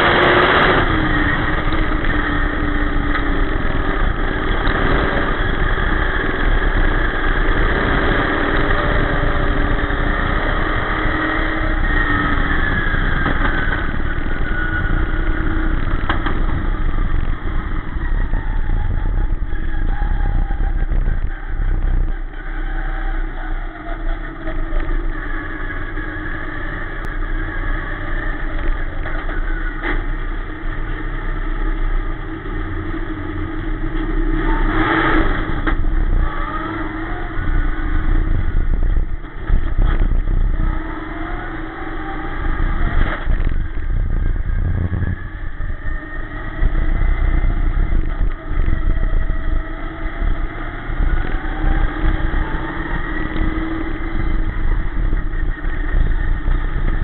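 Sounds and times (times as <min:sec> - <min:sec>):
race car engine revving: 0:00.0 - 0:57.0
knocks and clatters: 0:15.7 - 0:17.4.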